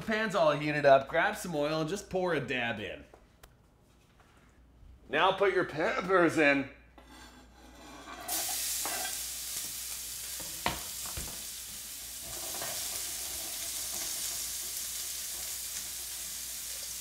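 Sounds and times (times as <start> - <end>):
peppers sizzling in hot oil: 8.2 - 17.0.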